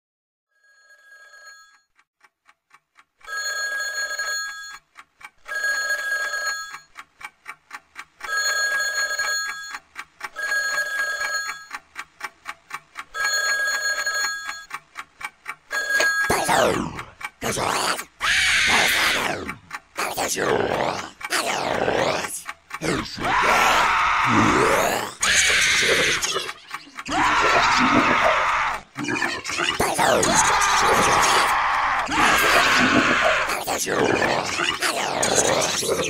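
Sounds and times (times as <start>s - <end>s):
telephone bell ringing: 0.6s - 1.9s, 3.3s - 4.8s, 5.5s - 6.9s, 8.3s - 9.8s, 10.4s - 11.7s, 13.2s - 14.7s, 15.7s - 16.3s
faint ticks: 1.7s - 17.4s, 18.0s - 24.2s.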